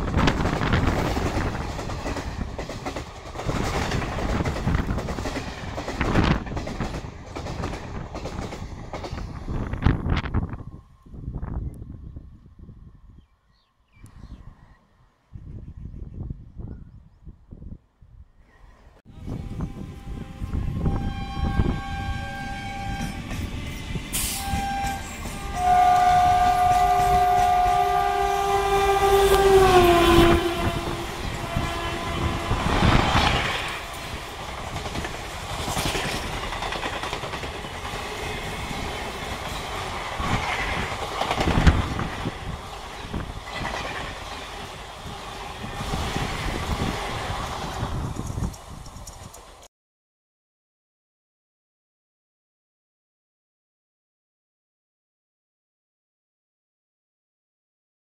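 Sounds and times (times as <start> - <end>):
train coaches rushing by: 0.0 - 10.4, 19.7 - 49.7
locomotive horn: 19.2 - 23.4, 24.2 - 34.3.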